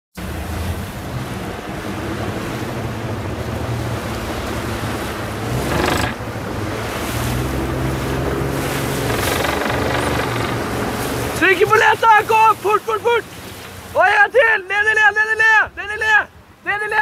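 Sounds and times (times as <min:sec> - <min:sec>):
wave splashing against hull: 0:00.2 - 0:14.0
boat engine hum: 0:00.2 - 0:16.8
waves rushing past boat: 0:00.2 - 0:17.0.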